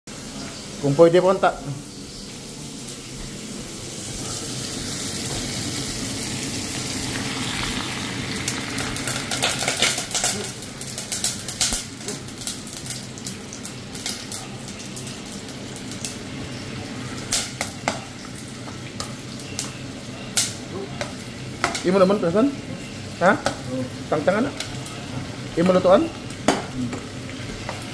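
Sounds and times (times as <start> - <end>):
meat sizzling in a pan: 0.1 - 27.9.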